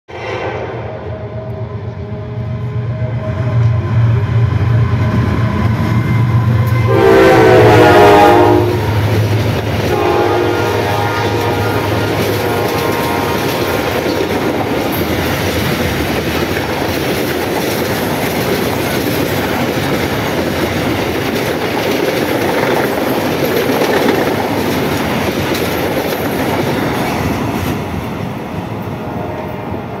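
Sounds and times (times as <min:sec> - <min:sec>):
locomotive horn: 0:00.1 - 0:03.8, 0:05.1 - 0:09.2, 0:09.8 - 0:14.3, 0:29.0 - 0:30.0
train wheels rumbling on rails: 0:01.4 - 0:30.0.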